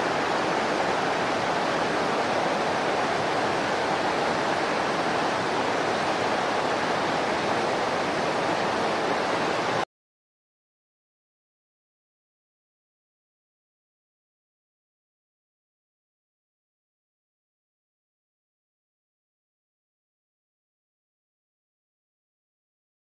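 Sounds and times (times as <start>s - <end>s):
fast-flowing stream rushing: 0.0s - 9.8s.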